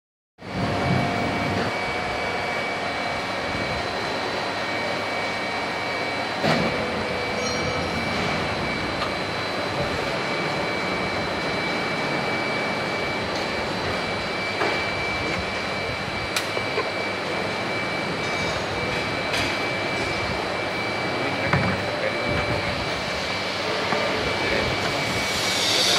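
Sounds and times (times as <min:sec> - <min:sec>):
machine running with high whine: 0:00.4 - 0:25.9
sharp machine clack: 0:25.2 - 0:25.9.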